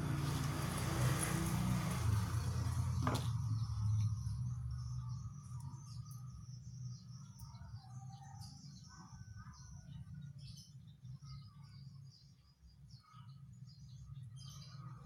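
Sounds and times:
vehicle passing rumble: 0.0s - 6.0s
small birds chirping: 0.1s - 15.0s.

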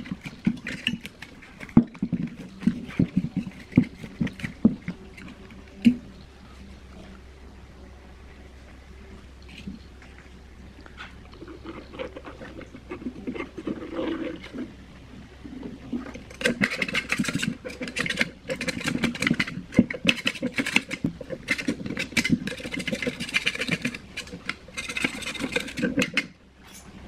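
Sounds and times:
blade scraping metal rim: 11.4s - 14.8s, 15.5s - 26.4s.

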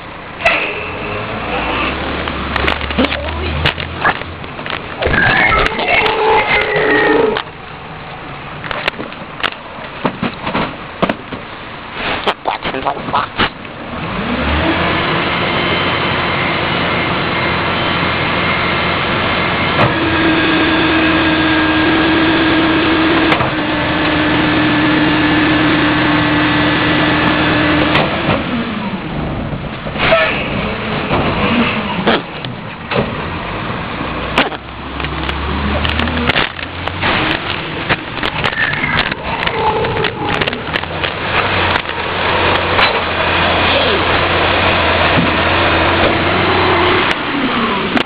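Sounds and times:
garbage truck engine revving: 0.0s - 12.3s, 13.0s - 48.0s
hydraulic whine: 4.9s - 7.9s, 14.0s - 29.0s, 34.9s - 48.0s.

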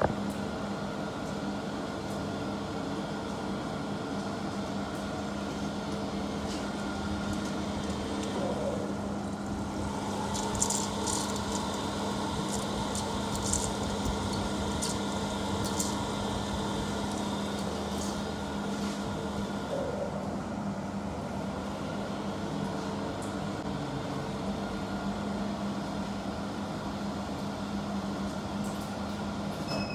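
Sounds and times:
machine humming with whine: 0.0s - 29.9s.

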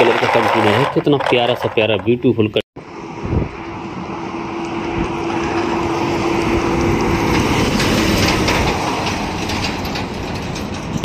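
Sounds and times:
truck passing at speed: 2.8s - 11.0s.

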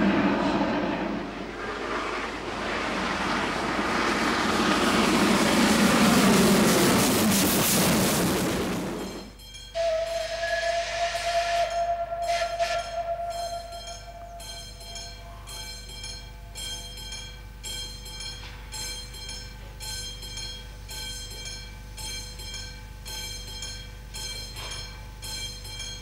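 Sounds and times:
low rumble: 0.0s - 9.4s
steam locomotive pulsing: 0.0s - 26.0s.

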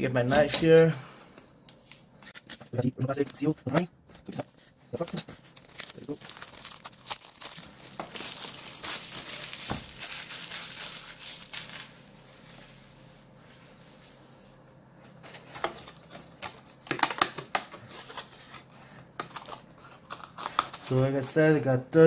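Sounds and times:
plastic shrink-wrap crinkling: 5.0s - 12.0s.

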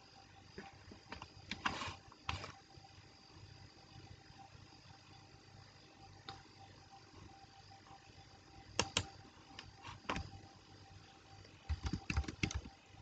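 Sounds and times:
computer keyboard typing: 8.8s - 9.1s, 11.6s - 12.8s.

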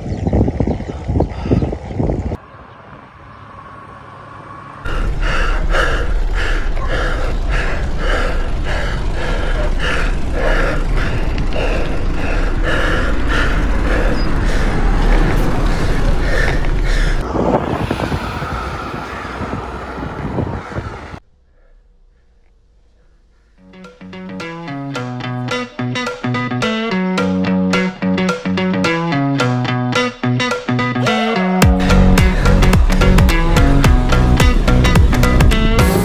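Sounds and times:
wind rumbling on microphone: 0.0s - 3.4s, 4.9s - 21.2s
regular beat: 23.6s - 36.0s.

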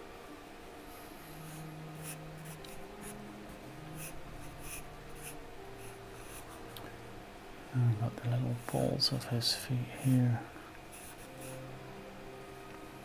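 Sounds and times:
charcoal pencil scratching on paper: 4.0s - 6.6s, 10.9s - 11.6s.

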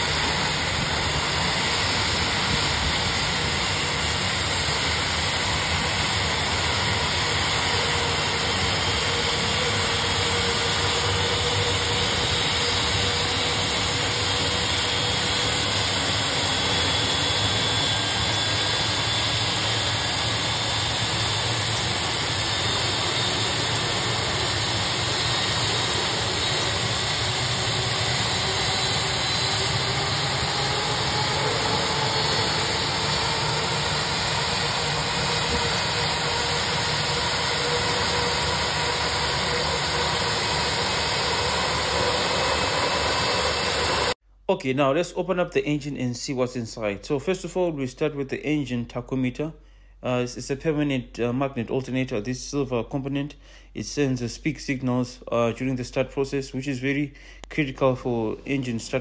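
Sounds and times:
jet engine rushing: 0.0s - 44.2s.

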